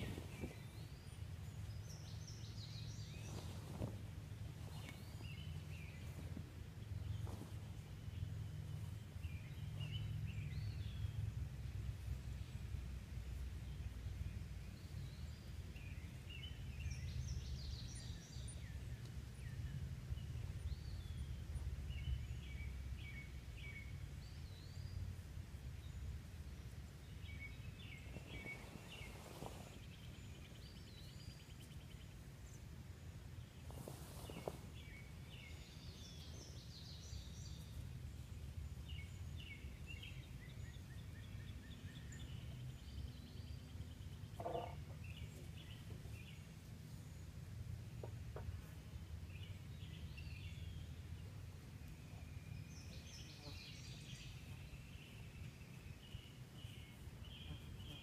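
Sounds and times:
rustling: 0.0s - 10.0s, 27.6s - 31.8s, 33.5s - 36.6s
small birds chirping: 0.0s - 58.0s.

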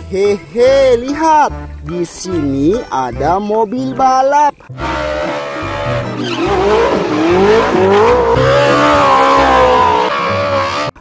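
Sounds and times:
race car engine revving: 4.8s - 11.0s
tyres squealing: 4.8s - 11.0s.

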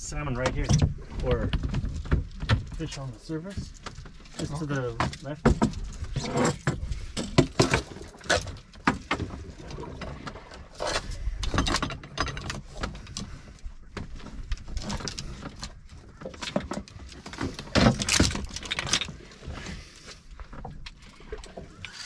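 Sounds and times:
fishing tackle clicking and rattling: 14.8s - 19.2s.

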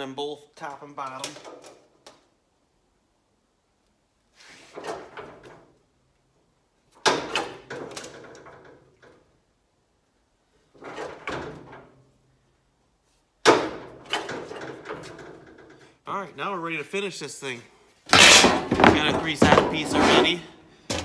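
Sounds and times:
sheet metal clattering: 13.4s - 15.8s, 18.1s - 21.0s.

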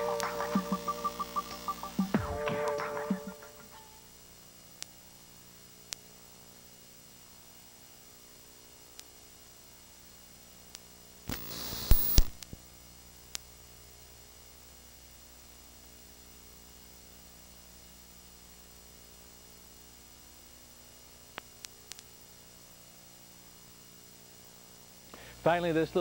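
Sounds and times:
crackling burst of static: 0.0s - 3.8s, 11.2s - 12.6s
electrical hum and hiss: 0.0s - 26.0s.

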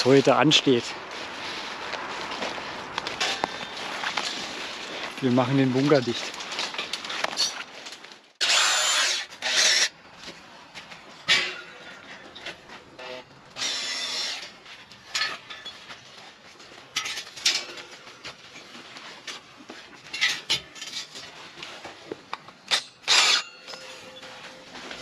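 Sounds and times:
cordless drill bursts: 8.4s - 9.9s, 13.0s - 14.4s.

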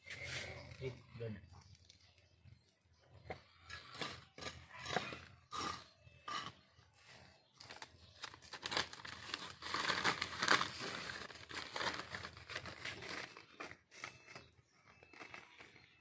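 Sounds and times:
plastic bag crinkling: 7.6s - 14.3s.

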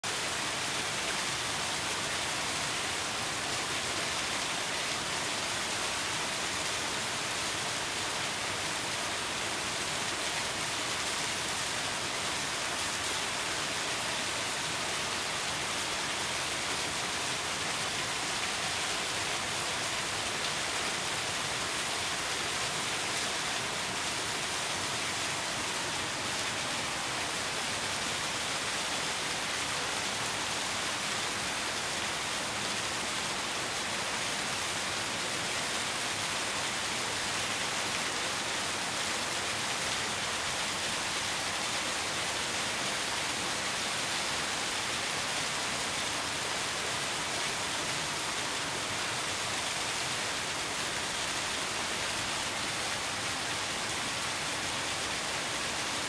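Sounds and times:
stream rushing over stones: 0.0s - 56.0s.

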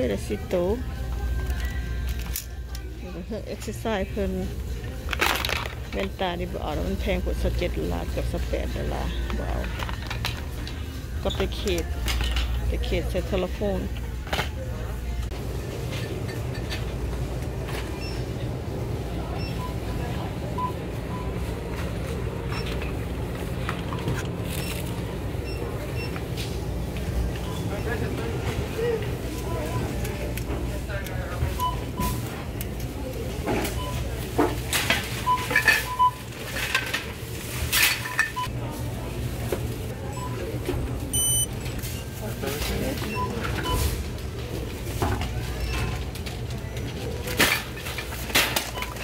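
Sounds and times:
store background rumble: 0.0s - 49.0s
items clattering: 5.0s - 6.8s, 8.2s - 14.6s, 42.3s - 49.0s
electronic checkout beeps: 19.2s - 21.5s, 24.5s - 26.4s, 27.3s - 28.1s, 31.5s - 32.2s, 33.6s - 34.2s, 40.1s - 42.0s, 42.8s - 44.0s
short faint beeps: 41.1s - 41.5s.

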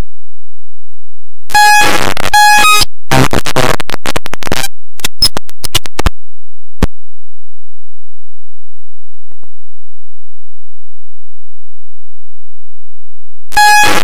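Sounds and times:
distorted electronic noise: 1.5s - 6.1s, 13.5s - 14.0s
clicks: 2.4s - 6.1s.

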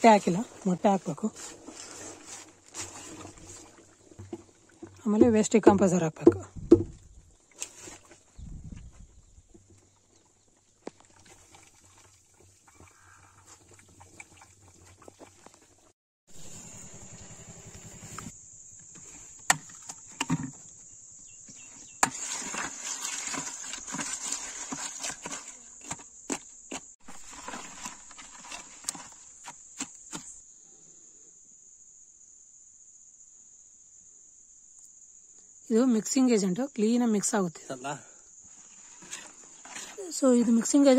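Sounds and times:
crickets chirring: 16.3s - 40.9s.

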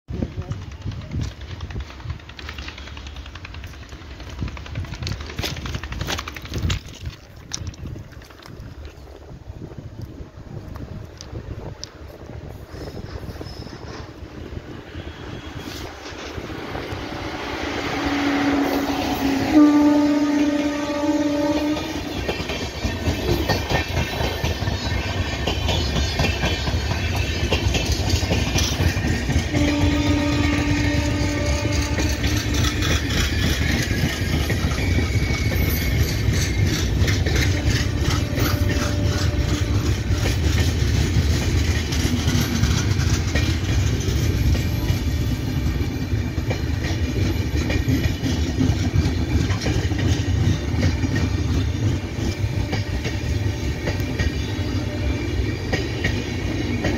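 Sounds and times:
train wheels rumbling on rails: 0.1s - 56.9s
clattering over rail joints: 0.2s - 9.1s.

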